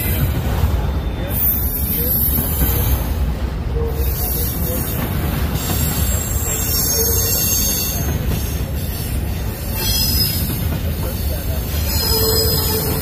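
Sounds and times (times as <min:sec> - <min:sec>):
train wheels rumbling on rail: 0:00.0 - 0:13.0
high-pitched wheel squeal: 0:05.6 - 0:08.2, 0:11.2 - 0:13.0.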